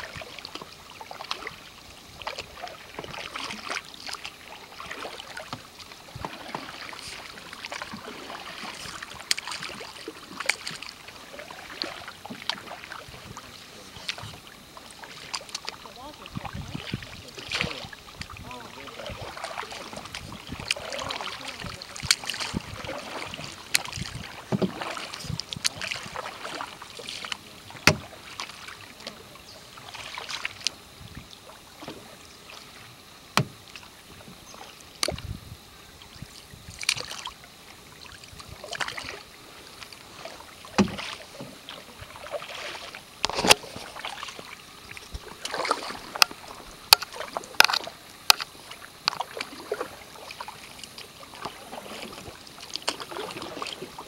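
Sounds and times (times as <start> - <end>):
paddle splashing through water: 0.0 - 54.0
paddle knocking canoe side: 4.8 - 10.9, 11.5 - 29.3, 33.3 - 35.3, 39.8 - 54.0.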